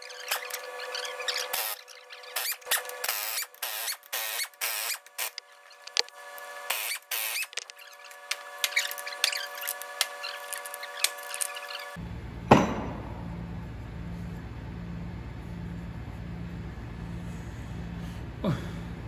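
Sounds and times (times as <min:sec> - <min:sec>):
low pulsing hum: 0:12.0 - 0:19.0
steady hum: 0:12.0 - 0:19.0
loud metallic knock: 0:12.5 - 0:13.5.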